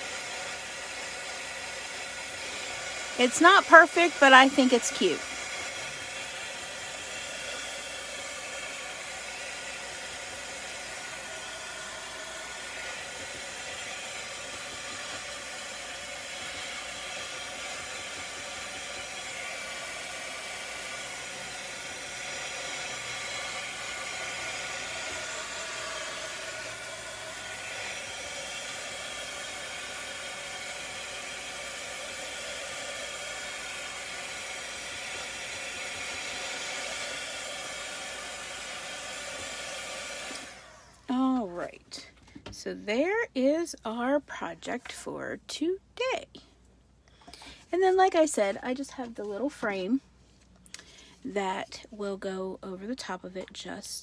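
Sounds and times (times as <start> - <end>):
heat gun blowing: 0.0 - 41.4.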